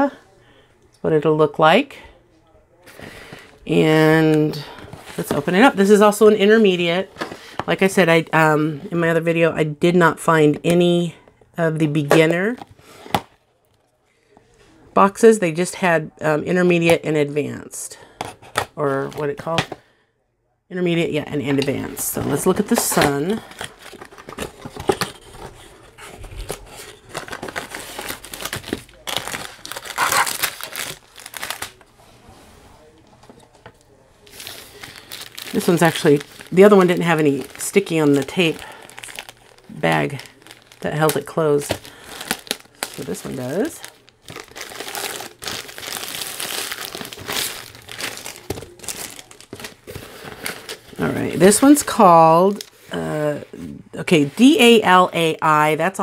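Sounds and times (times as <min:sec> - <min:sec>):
plastic packaging crinkling: 0:21.9 - 0:31.9, 0:33.4 - 0:52.9.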